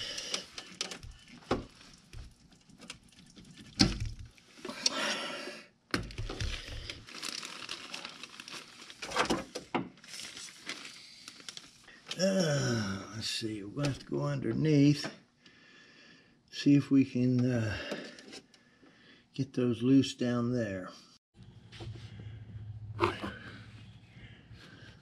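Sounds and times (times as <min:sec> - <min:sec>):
hoses knocking and rustling: 0:00.0 - 0:04.4.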